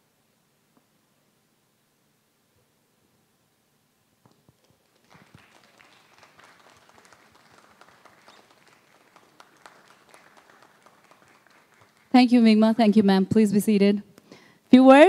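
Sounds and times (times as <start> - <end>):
faint audience applause: 4.5 - 12.3.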